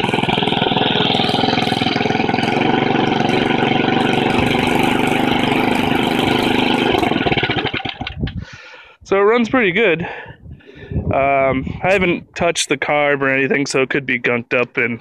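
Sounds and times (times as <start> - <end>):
small engine running: 0.0 - 8.4.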